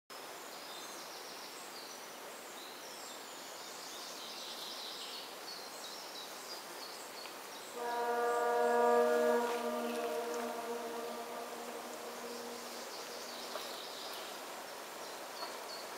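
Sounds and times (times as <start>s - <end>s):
steady outdoor hiss: 0.1s - 15.9s
train horn: 7.7s - 13.8s.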